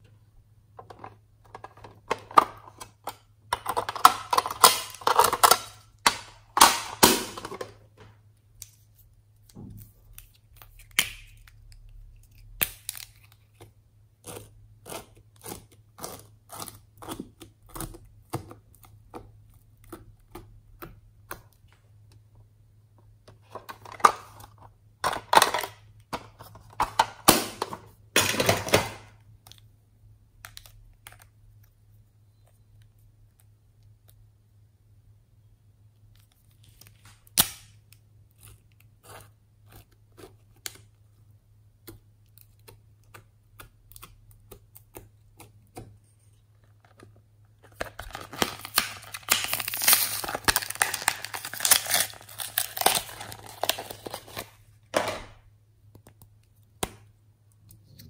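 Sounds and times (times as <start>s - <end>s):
plastic pencil case crackling: 46.6s - 54.6s.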